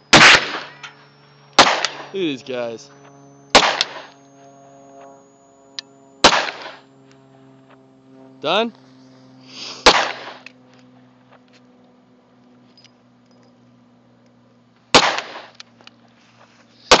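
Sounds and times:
handgun shots: 0.1s - 0.8s, 1.6s - 2.1s, 3.6s - 4.1s, 6.2s - 6.8s, 9.8s - 10.5s, 14.9s - 15.6s.

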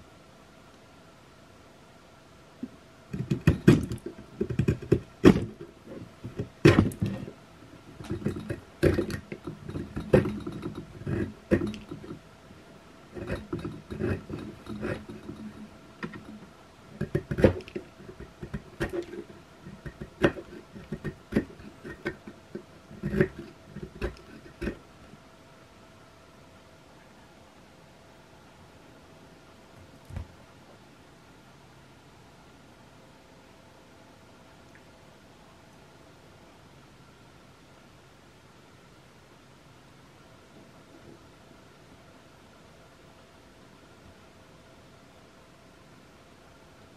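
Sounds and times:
saw teeth clicking on wood: 3.2s - 7.3s, 8.0s - 12.2s, 13.2s - 24.8s
saw scraping across wood: 3.2s - 12.2s, 13.2s - 24.8s.

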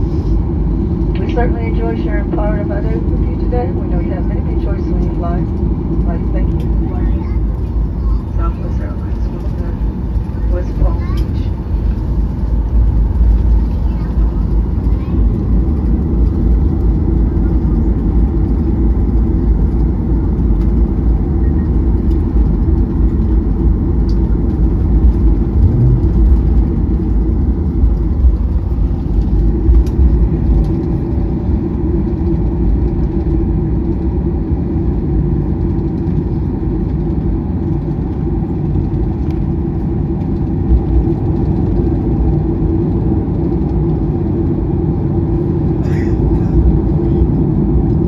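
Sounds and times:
aircraft cabin low rumble: 0.0s - 48.0s.

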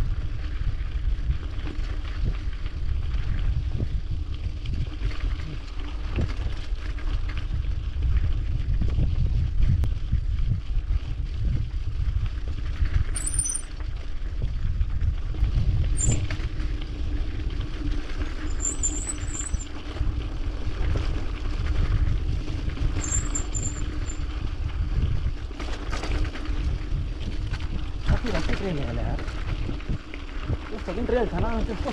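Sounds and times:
bike tyres rumbling on gravel: 0.0s - 31.9s
wind on microphone: 0.0s - 31.9s
brakes squealing: 16.0s - 16.3s, 18.4s - 19.7s, 23.0s - 24.2s.

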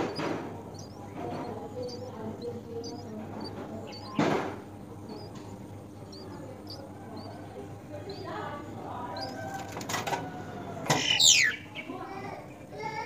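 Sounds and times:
bird chirping: 0.0s - 9.8s, 10.9s - 12.8s
rustling in nest: 0.0s - 11.2s
wings flapping: 9.2s - 10.3s.

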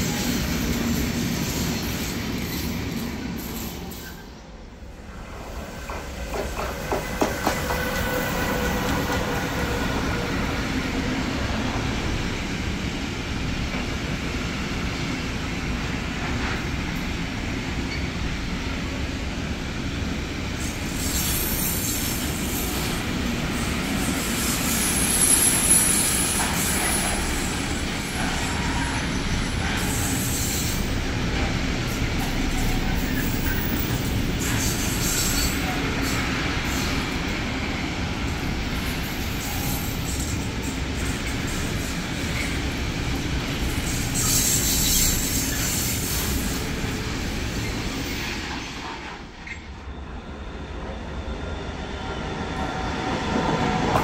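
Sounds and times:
electric locomotive passing: 0.0s - 54.0s
wagons rumbling on rails: 0.0s - 54.0s
high wheel squeal: 44.0s - 46.6s.

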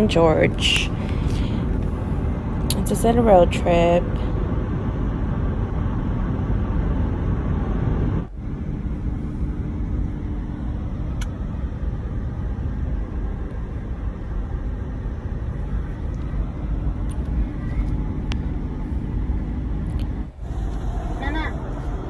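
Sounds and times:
car cabin road and engine noise: 0.0s - 22.0s
faint steady hum: 0.0s - 22.0s.

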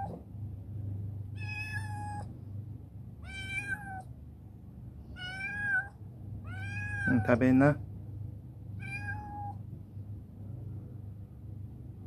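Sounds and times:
steady low hum: 0.0s - 12.0s
cat meowing: 1.4s - 2.3s, 3.2s - 4.1s, 5.1s - 7.4s, 8.8s - 9.6s.

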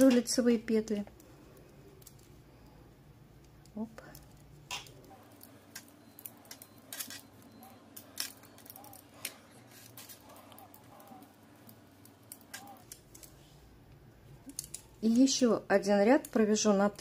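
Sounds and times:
metal knitting needles clicking: 3.4s - 9.4s, 10.0s - 13.3s, 14.4s - 15.3s, 16.1s - 16.5s.

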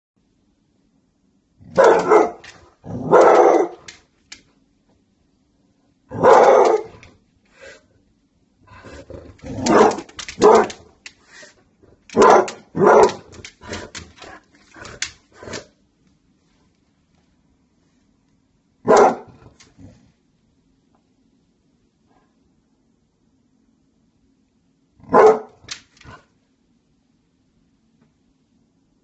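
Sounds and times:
dog barking: 1.7s - 3.9s, 6.1s - 7.0s, 9.5s - 10.9s, 12.1s - 13.4s, 18.8s - 19.5s, 25.0s - 25.6s.

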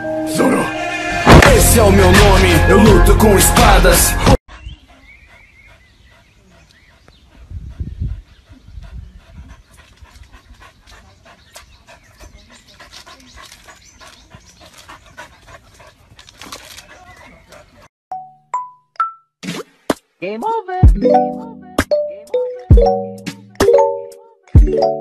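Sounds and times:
dog panting: 4.5s - 17.9s.

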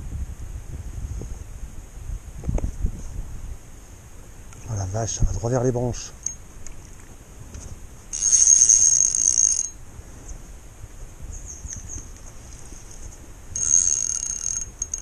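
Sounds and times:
fishing reel drag buzzing: 8.1s - 9.8s, 13.5s - 15.0s.

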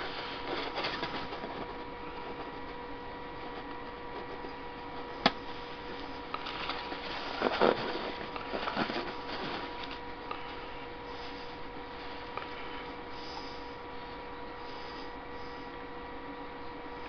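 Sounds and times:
rustling and scraping of handling: 0.0s - 13.7s
faint electrical hum: 0.0s - 17.0s.

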